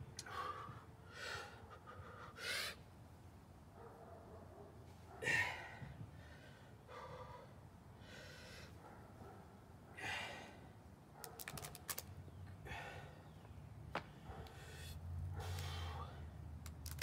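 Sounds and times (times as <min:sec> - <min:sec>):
man straining breaths and gasps: 0:05.2 - 0:08.8, 0:10.0 - 0:10.8, 0:12.6 - 0:13.4, 0:14.5 - 0:16.4.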